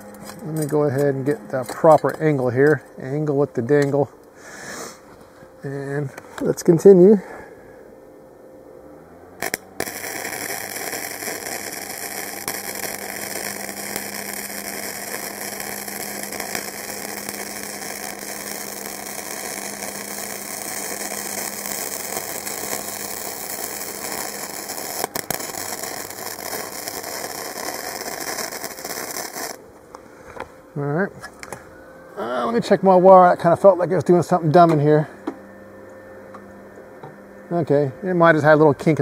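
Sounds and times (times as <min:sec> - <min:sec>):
welding arc crackling: 0:09.4 - 0:29.6.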